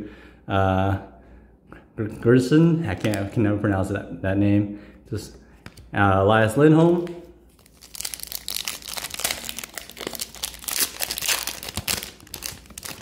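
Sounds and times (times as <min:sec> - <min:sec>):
plastic wrapper crinkling: 0:02.9 - 0:03.4, 0:06.8 - 0:13.0.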